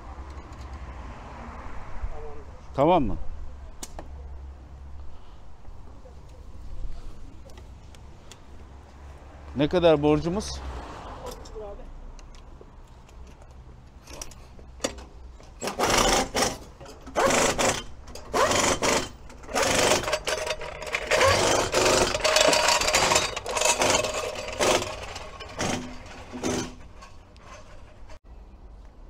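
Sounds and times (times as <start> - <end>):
floor jack rattling on paving: 14.1 - 28.2.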